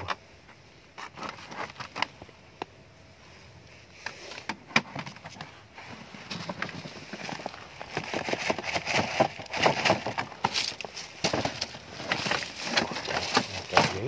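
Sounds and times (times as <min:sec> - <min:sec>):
rustling and light knocks: 0:04.0 - 0:14.0.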